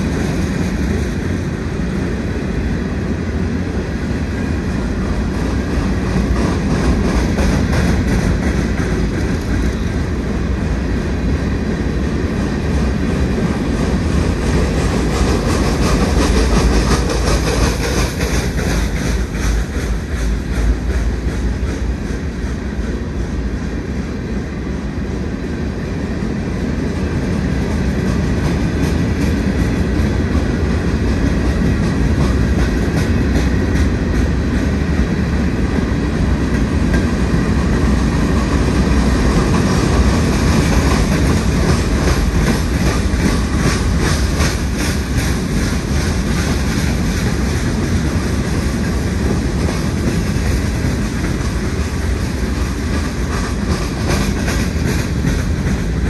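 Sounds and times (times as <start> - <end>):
train wheels rumbling on rail: 0.0 - 56.0
wheels clicking over rail joints: 12.7 - 23.1, 27.6 - 56.0.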